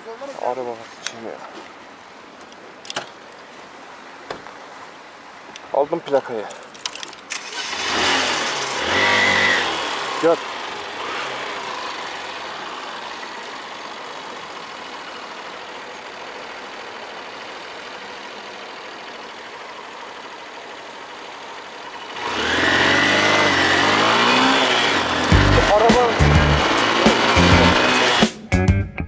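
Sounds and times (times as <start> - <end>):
motorcycle engine: 7.3 - 28.4.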